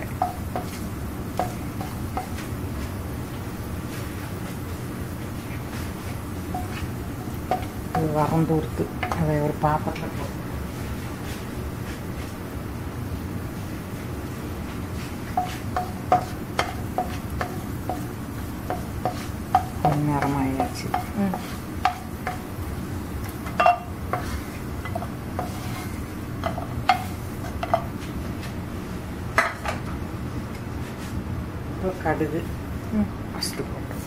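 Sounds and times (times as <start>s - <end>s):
wooden spatula tapping and scraping wok: 0.0s - 2.9s, 3.9s - 10.3s, 14.9s - 28.6s.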